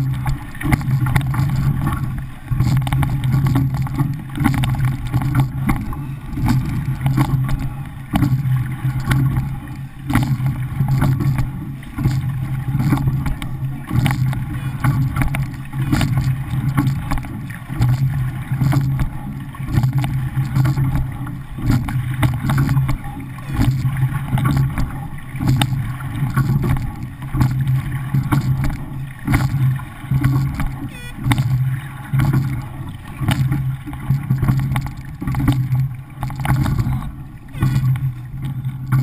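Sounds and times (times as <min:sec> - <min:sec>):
water rushing along a hull: 0:00.0 - 0:39.0
oars knocking: 0:19.8 - 0:39.0.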